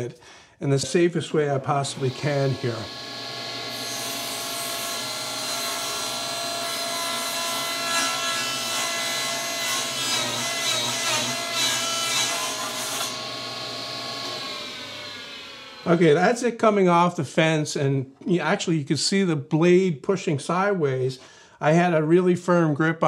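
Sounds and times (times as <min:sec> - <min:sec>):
table saw running: 0:01.7 - 0:16.2
table saw cutting plywood: 0:01.7 - 0:16.3.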